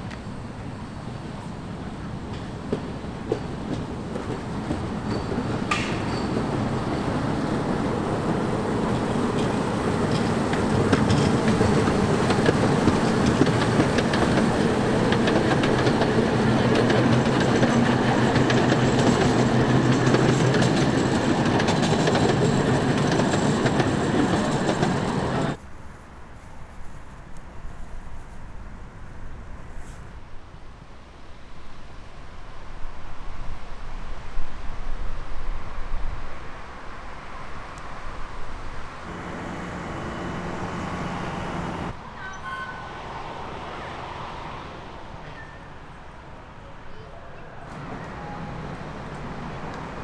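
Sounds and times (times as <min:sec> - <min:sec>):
wheels rattling on rails: 0:00.0 - 0:25.6, 0:39.0 - 0:42.8
train rumbling along track: 0:00.0 - 0:30.3, 0:31.8 - 0:50.0.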